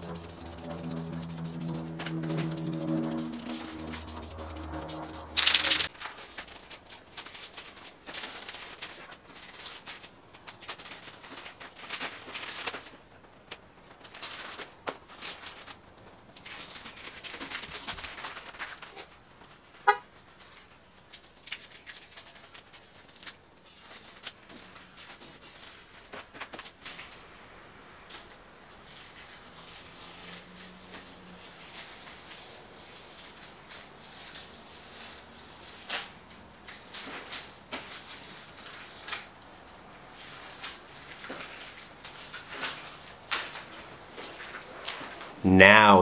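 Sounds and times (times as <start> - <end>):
loud burst of noise: 0.0 - 5.9
masking tape peeling: 0.0 - 5.9.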